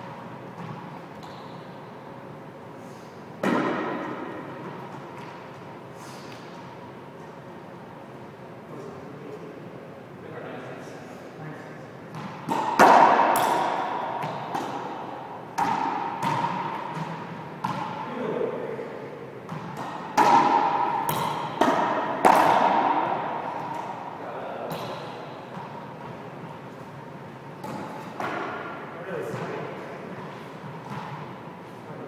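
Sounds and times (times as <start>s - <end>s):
ball hitting walls and floor: 0.0s - 1.8s, 3.4s - 6.6s, 12.1s - 18.3s, 19.4s - 26.4s, 27.6s - 31.5s
racquet hitting ball: 0.0s - 1.8s, 3.4s - 6.7s, 12.1s - 18.4s, 19.4s - 31.6s.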